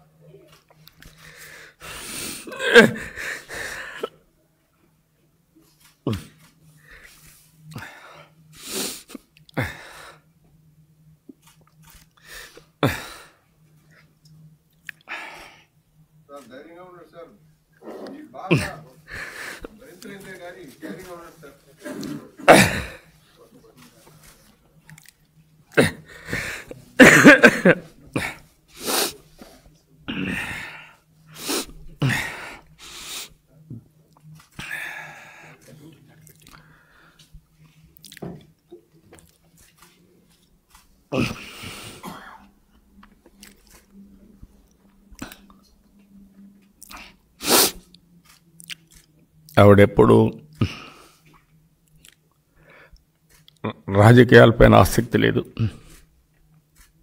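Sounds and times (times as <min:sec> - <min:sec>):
sniffing and shaky breaths: 0:00.8 - 0:04.2, 0:15.0 - 0:15.7, 0:17.8 - 0:20.2, 0:25.7 - 0:27.0, 0:28.0 - 0:33.4, 0:34.4 - 0:37.9
man sobbing: 0:01.9 - 0:04.2, 0:12.8 - 0:13.3, 0:22.2 - 0:23.1, 0:25.7 - 0:28.4, 0:32.0 - 0:32.6, 0:41.1 - 0:42.1
sniffs and nose breaths: 0:30.8 - 0:33.4.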